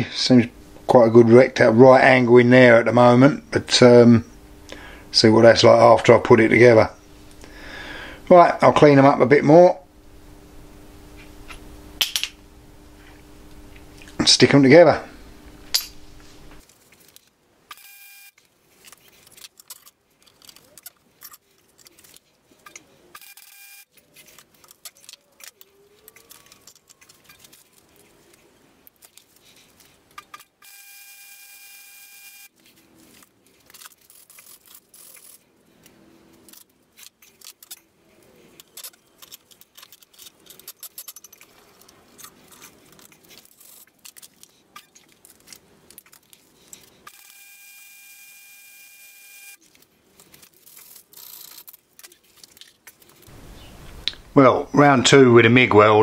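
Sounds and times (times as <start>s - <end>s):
faint steady whine: 0.0s - 56.0s
welder arc crackling: 10.0s - 16.7s.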